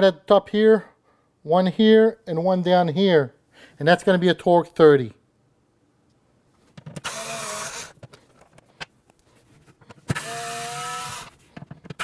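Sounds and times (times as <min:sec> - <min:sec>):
power driver motor whining: 0:07.0 - 0:08.0, 0:10.1 - 0:11.3.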